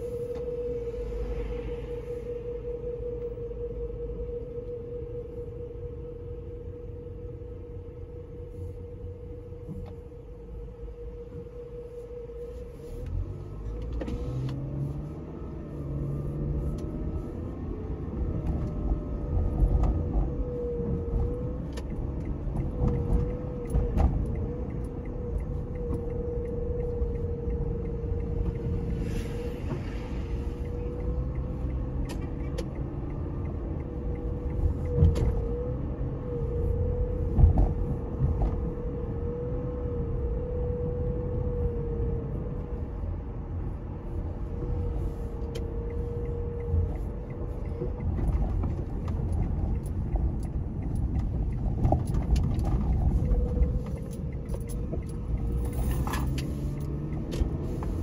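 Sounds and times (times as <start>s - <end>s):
thin steady whine: 0.0s - 14.2s
car engine and road noise: 0.0s - 58.0s.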